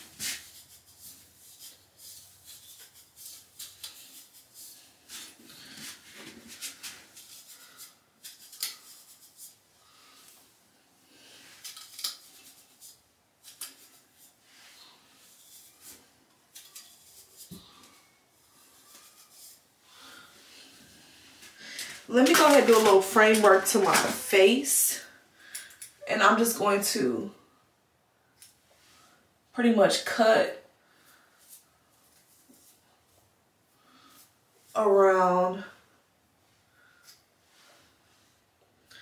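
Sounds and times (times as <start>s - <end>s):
hair pick rustling through wig: 11.3s - 24.8s.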